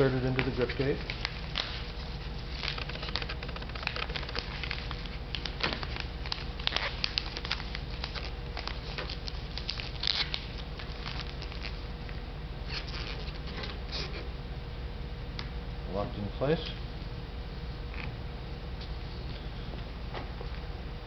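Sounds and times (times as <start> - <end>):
steady low hum: 0.0 - 21.0
plastic tape clicking and crackling: 2.5 - 11.7.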